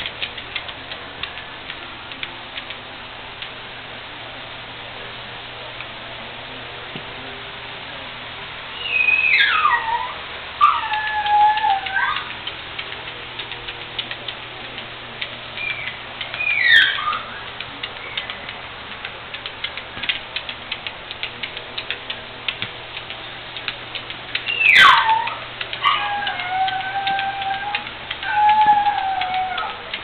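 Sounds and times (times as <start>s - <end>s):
dog whining: 8.7s - 12.4s, 15.6s - 18.4s, 24.4s - 30.0s
dog claws clicking on tile: 10.8s - 30.0s.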